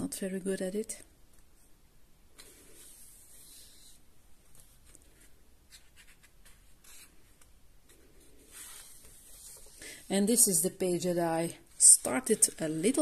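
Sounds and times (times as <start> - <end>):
hands rubbing paper: 2.4 - 4.0, 7.9 - 9.8
paper page turning: 8.5 - 9.8.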